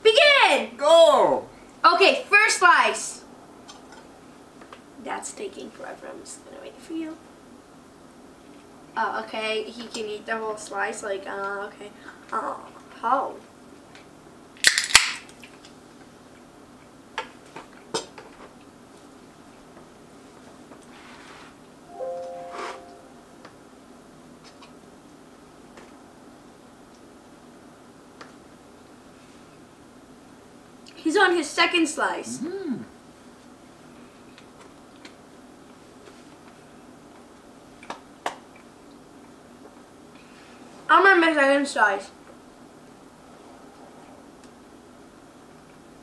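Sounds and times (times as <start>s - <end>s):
drink can cracking open: 14.6s - 15.4s.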